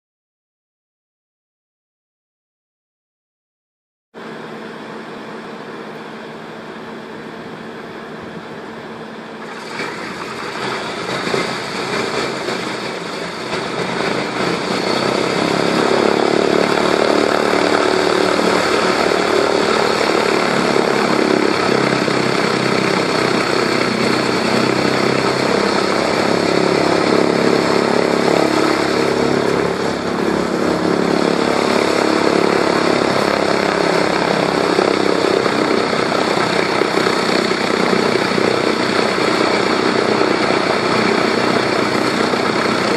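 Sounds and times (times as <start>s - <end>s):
radial aircraft engines starting up: 4.2s - 42.9s.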